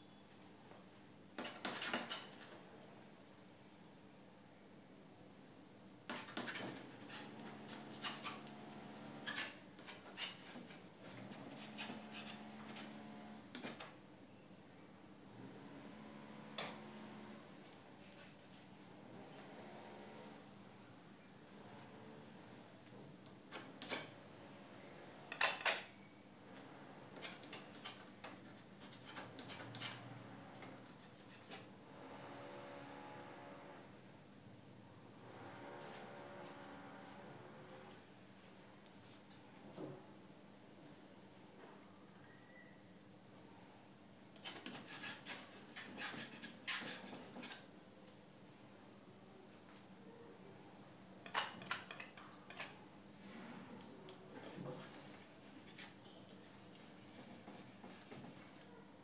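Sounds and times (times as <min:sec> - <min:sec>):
palette knife scraping paint: 0:01.4 - 0:02.6, 0:06.1 - 0:13.1, 0:27.1 - 0:31.7, 0:44.4 - 0:47.7.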